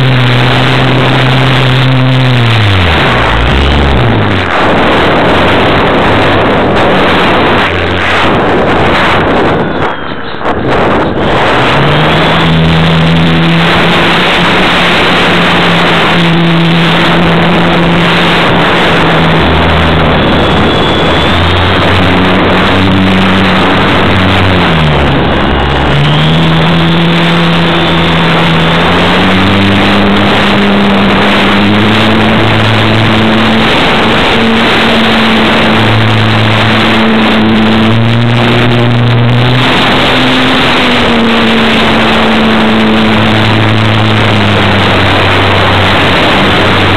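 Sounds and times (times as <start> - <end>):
model aircraft motor and propeller: 0.0 - 10.4
rush of air noise: 0.0 - 46.9.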